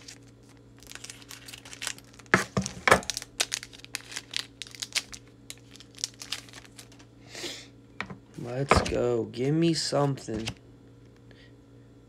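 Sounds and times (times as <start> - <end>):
foil wrapper crinkling: 0.0 - 7.1.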